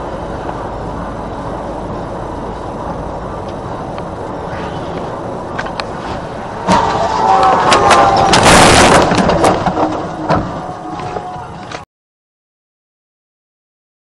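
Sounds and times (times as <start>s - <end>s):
road and engine noise: 0.0s - 11.9s
loud crash bang: 6.6s - 10.5s.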